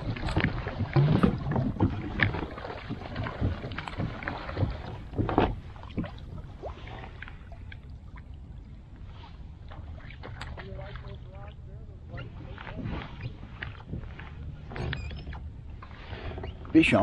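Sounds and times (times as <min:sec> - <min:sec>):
knocks and rattles on kayak: 0:00.0 - 0:07.4, 0:12.0 - 0:17.0
low rumble of water and wind: 0:00.0 - 0:17.0.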